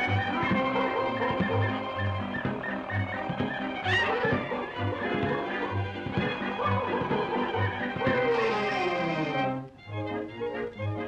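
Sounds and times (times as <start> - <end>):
cartoon music with bass beat: 0.0 - 8.6.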